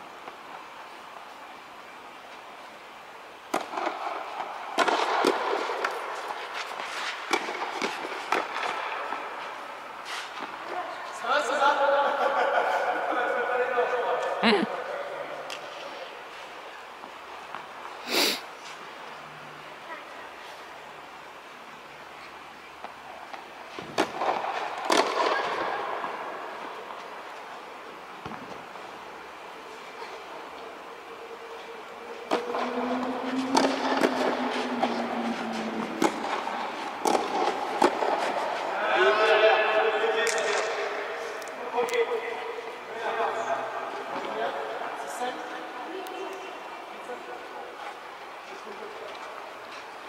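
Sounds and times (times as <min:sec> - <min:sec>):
tennis ball struck by rackets: 0:23.8 - 0:25.6, 0:32.3 - 0:34.9, 0:35.8 - 0:38.4
tennis ball bouncing: 0:32.3 - 0:38.4.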